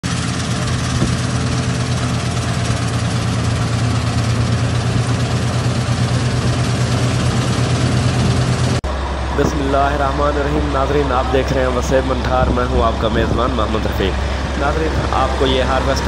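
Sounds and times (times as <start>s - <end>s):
combine harvester engine humming: 0.0s - 16.0s
cutter and threshing machinery: 0.0s - 16.0s.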